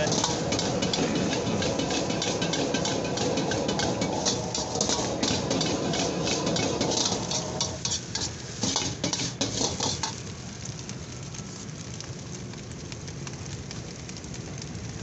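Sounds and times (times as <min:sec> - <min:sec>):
metal ladle clanking on wok: 0:00.0 - 0:10.2
food sizzling: 0:00.0 - 0:15.0.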